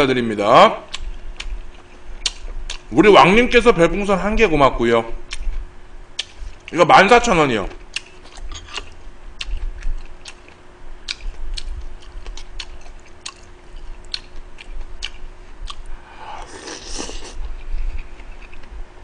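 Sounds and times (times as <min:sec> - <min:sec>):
person chewing noodles: 0:00.9 - 0:02.9, 0:07.9 - 0:18.8
slurping soup from a spoon: 0:16.3 - 0:17.4.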